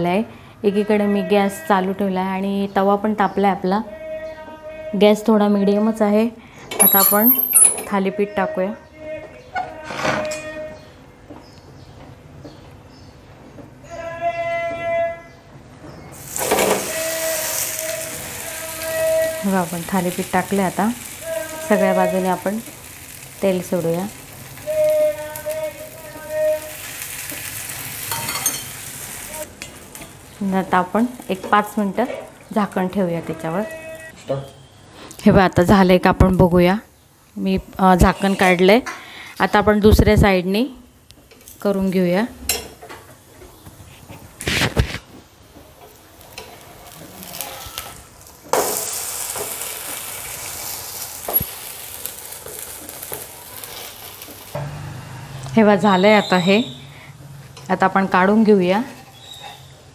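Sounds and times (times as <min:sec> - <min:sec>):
oil sizzling and crackling: 0:16.1 - 0:33.0, 0:36.1 - 0:38.7, 0:43.1 - 0:57.9.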